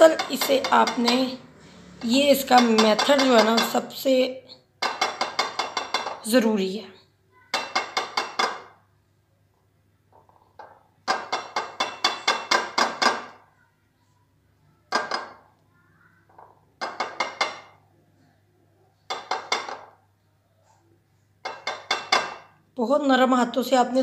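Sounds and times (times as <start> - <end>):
glass bowl clinking: 0.0 - 1.6, 2.2 - 3.9, 4.8 - 6.2, 7.5 - 8.8, 10.6 - 13.4, 21.4 - 22.5.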